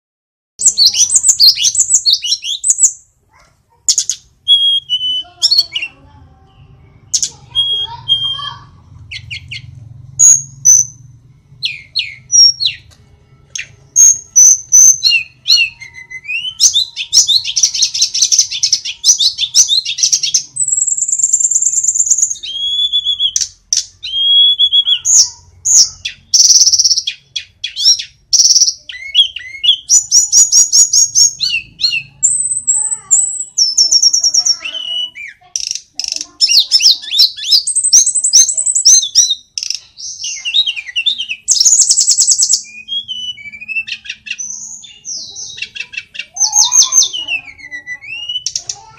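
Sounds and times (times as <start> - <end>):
flycatcher singing: 0.6 - 3.4, 4.0 - 48.9.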